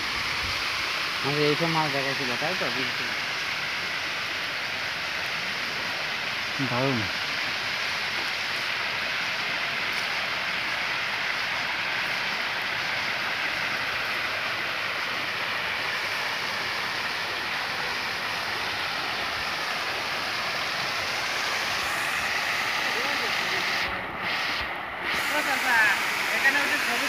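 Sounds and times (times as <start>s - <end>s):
waterfall rushing: 0.0s - 27.0s.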